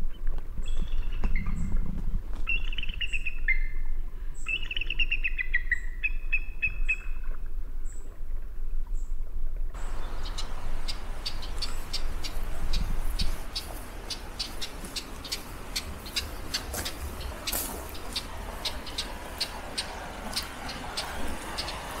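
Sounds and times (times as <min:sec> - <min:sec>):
small birds chirping: 0:02.4 - 0:07.2, 0:09.8 - 0:22.0
steady hiss with ticks: 0:09.6 - 0:22.0
steady low rumble: 0:09.7 - 0:22.0.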